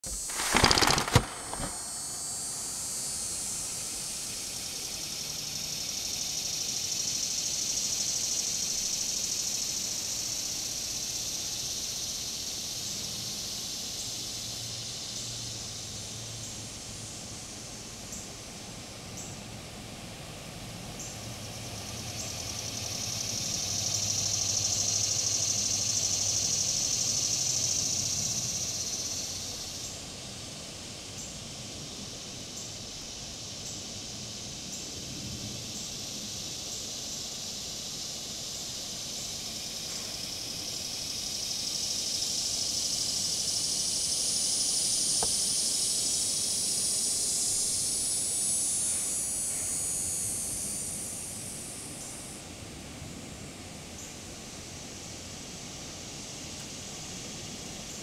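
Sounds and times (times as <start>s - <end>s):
loud burst of noise: 0.0s - 3.6s
cicadas buzzing: 0.0s - 58.0s.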